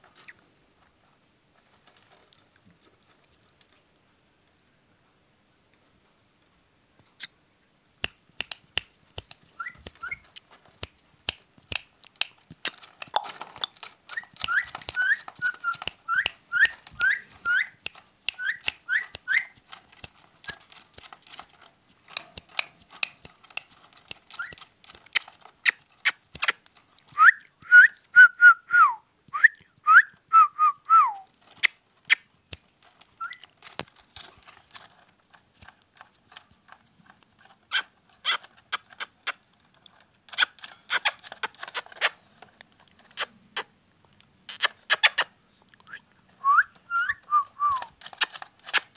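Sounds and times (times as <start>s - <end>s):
sharp clicks: 8.0s - 27.2s
parrot whistling: 14.1s - 17.8s.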